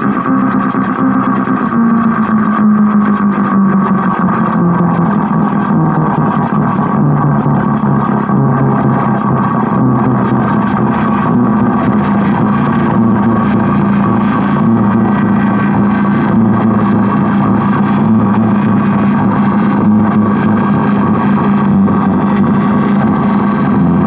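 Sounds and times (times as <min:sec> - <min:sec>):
low synth drone with hiss: 0:00.0 - 0:24.0.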